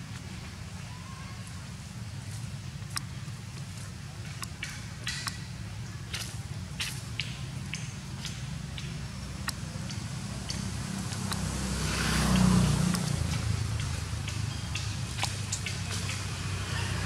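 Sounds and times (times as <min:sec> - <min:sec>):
vehicle engine rumble: 0:00.0 - 0:17.0
faint sharp clicks: 0:06.1 - 0:11.5.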